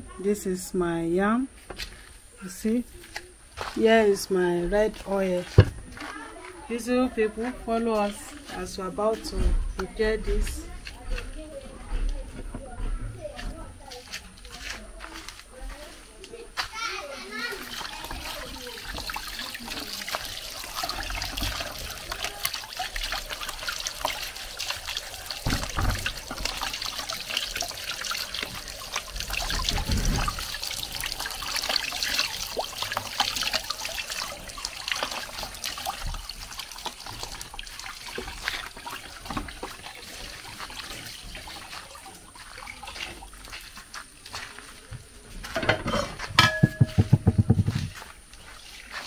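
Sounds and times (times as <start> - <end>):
water trickling and splashing: 0.0 - 49.0
dull knocks: 46.4 - 48.0.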